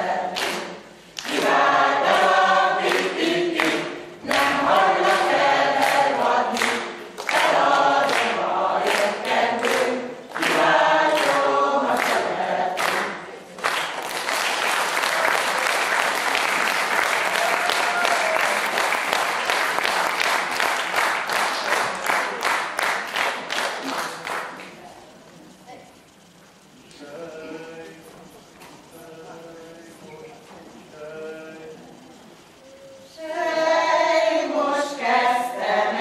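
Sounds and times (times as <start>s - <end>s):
choir singing unaccompanied: 0.0s - 21.9s, 26.2s - 36.0s
audience applause: 13.6s - 24.8s.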